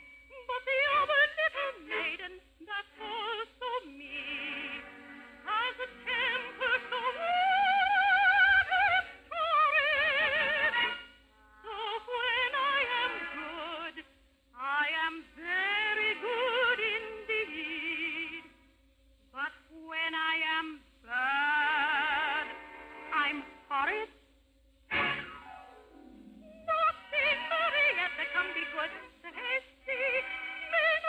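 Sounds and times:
person singing with vibrato: 0:00.0 - 0:14.0, 0:14.6 - 0:18.5, 0:19.4 - 0:24.1, 0:26.3 - 0:31.0
backing music: 0:24.9 - 0:31.0.

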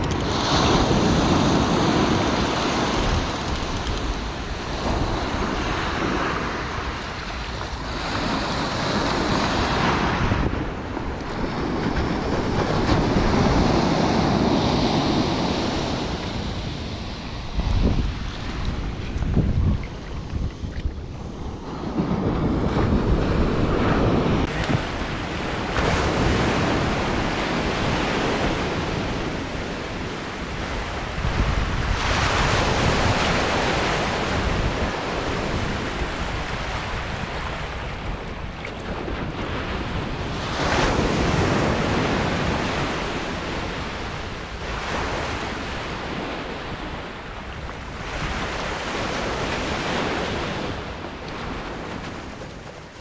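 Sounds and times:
surf breaking on a beach: 0:00.0 - 0:53.0
wind on microphone: 0:00.0 - 0:53.0.

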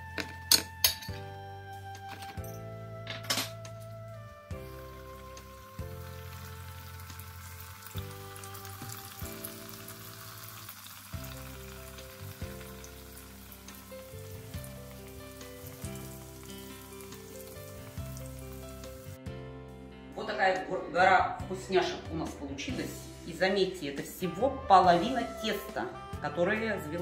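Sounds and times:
background music: 0:00.0 - 0:27.0
dough frying in oil sizzling: 0:04.5 - 0:19.2.

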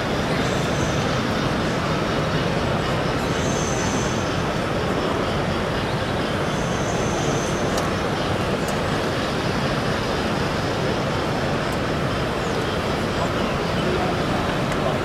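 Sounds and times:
busy exhibition hall din: 0:00.0 - 0:15.0
faint clicks: 0:07.7 - 0:08.0.

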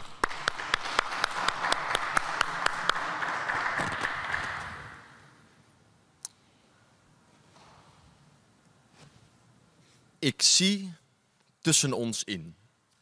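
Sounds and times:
people clapping: 0:00.0 - 0:05.2.

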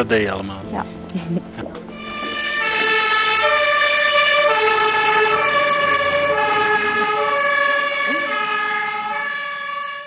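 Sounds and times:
fire engine two-tone siren: 0:02.0 - 0:10.0.

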